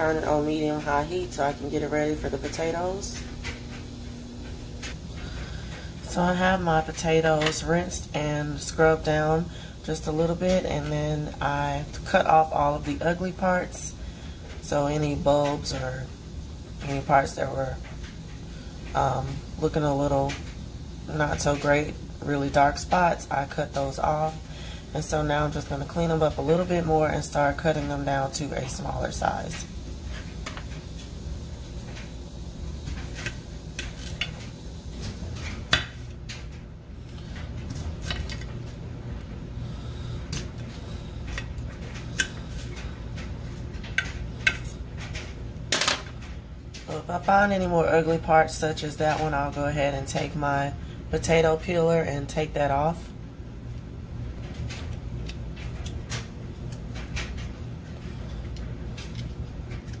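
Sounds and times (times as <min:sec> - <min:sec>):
low hum: 0:00.0 - 0:47.1.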